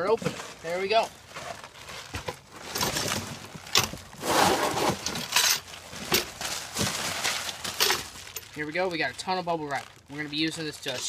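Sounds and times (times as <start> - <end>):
bubble wrap crinkling: 0.0 - 11.0.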